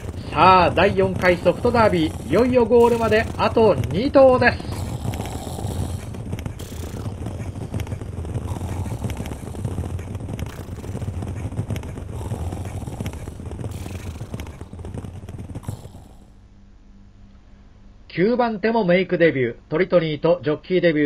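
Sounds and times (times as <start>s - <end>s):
horse hoofbeats: 0.0s - 16.4s
steady low rumble: 0.0s - 16.6s.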